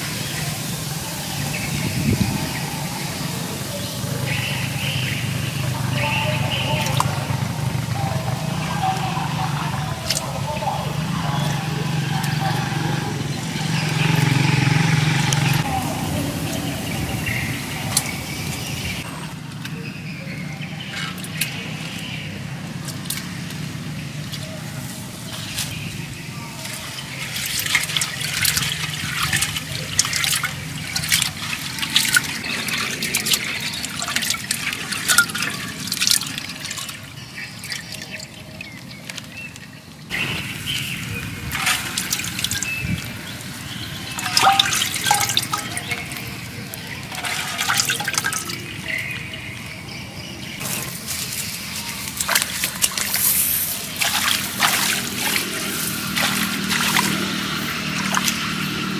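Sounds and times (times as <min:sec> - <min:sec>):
water splashing in a jar: 0:26.6 - 0:49.6, 0:50.6 - 0:58.9.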